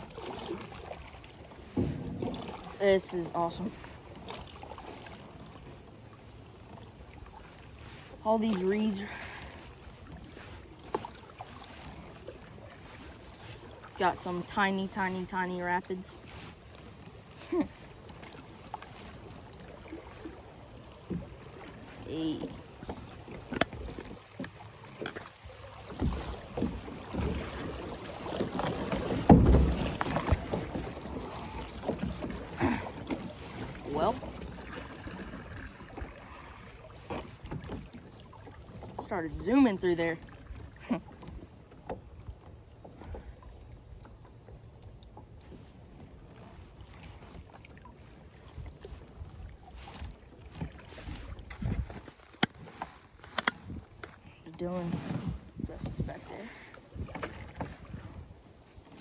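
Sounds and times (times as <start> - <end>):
water rushing past kayak: 0.0 - 59.0
knocks on kayak: 1.7 - 2.6, 29.1 - 30.6.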